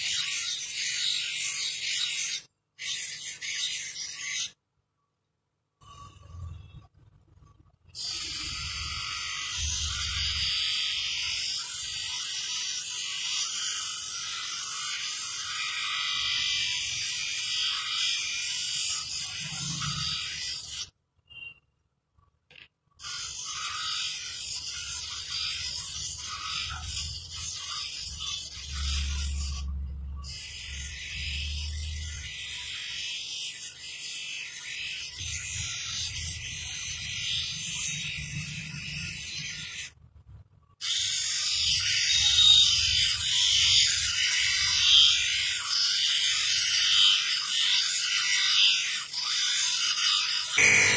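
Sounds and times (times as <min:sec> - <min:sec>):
high grinding hiss: 0:50.6 - 0:50.9
low motor hum: 0:50.6 - 0:50.9.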